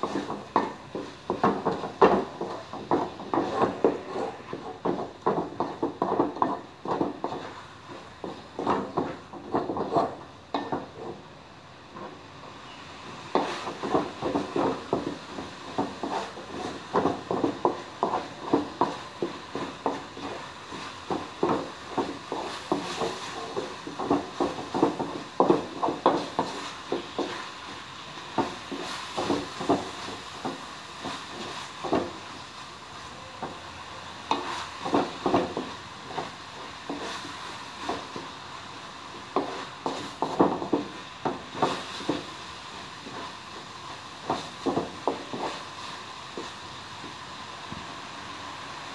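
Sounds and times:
wooden spatula scraping wok: 0:00.0 - 0:11.3, 0:13.1 - 0:47.3
faint frying sizzle: 0:12.3 - 0:48.9.

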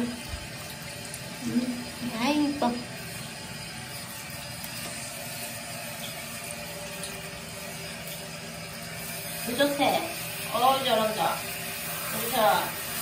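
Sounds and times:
shower head water spraying: 0:00.0 - 0:13.0.

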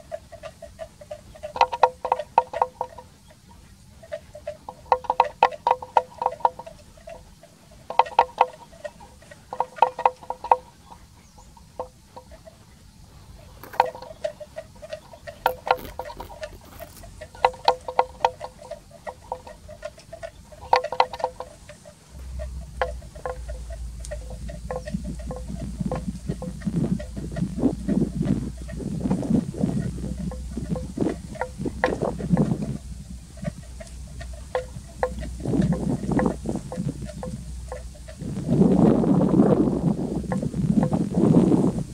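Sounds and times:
animal bell clanking: 0:00.0 - 0:38.3
low rumble: 0:21.5 - 0:41.9.

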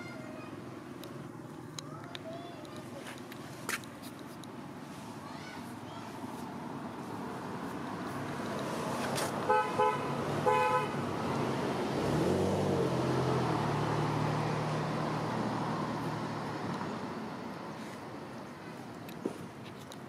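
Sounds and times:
vehicle engine passing: 0:06.6 - 0:18.0
vehicle horn honking: 0:09.4 - 0:11.0.

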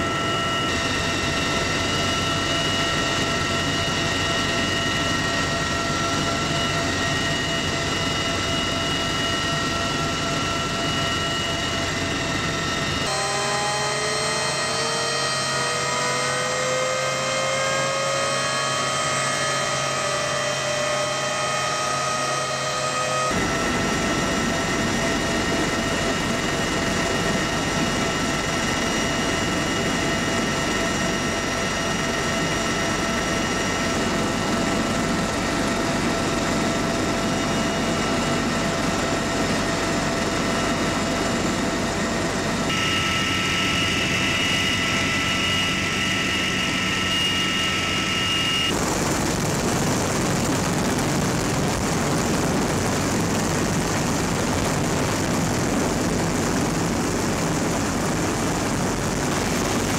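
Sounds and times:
helicopter rotor and engine noise: 0:00.0 - 0:59.9
helicopter turbine whine: 0:00.0 - 0:59.9.

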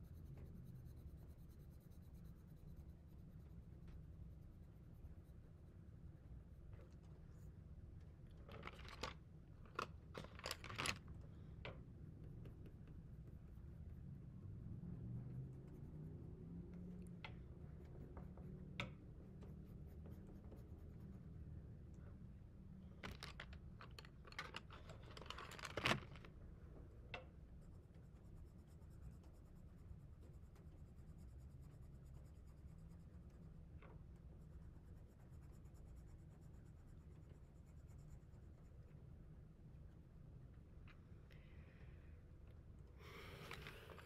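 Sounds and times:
faint scratching of coloring on paper: 0:00.0 - 0:09.2, 0:10.2 - 0:22.0, 0:27.2 - 0:40.3.

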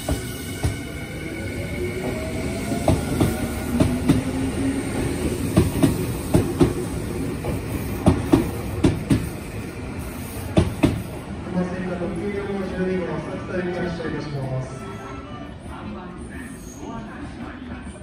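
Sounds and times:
train wheels clacking on rail joints: 0:07.4 - 0:09.3.

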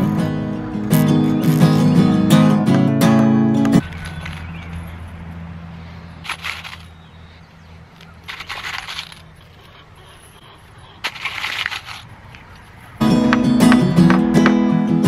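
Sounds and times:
acoustic guitar tune: 0:00.0 - 0:03.8, 0:13.0 - 0:15.0.

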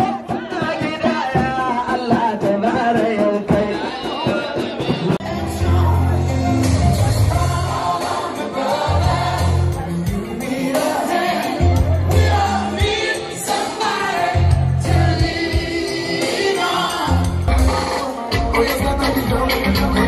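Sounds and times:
voices singing: 0:00.0 - 0:20.0
heavy bass line: 0:05.2 - 0:10.3, 0:16.8 - 0:20.0.

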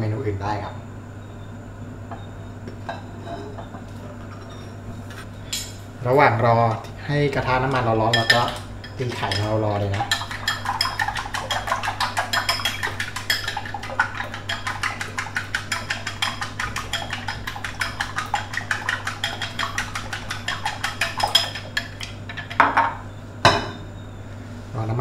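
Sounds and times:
chopsticks beating eggs in bowl: 0:06.8 - 0:22.6.

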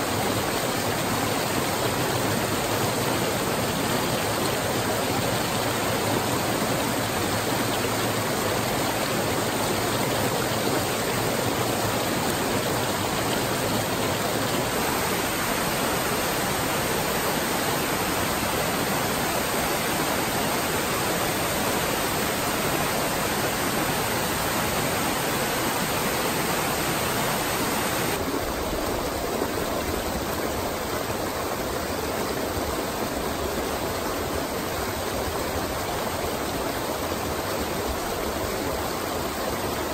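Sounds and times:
stream water splashing: 0:00.0 - 0:39.9.

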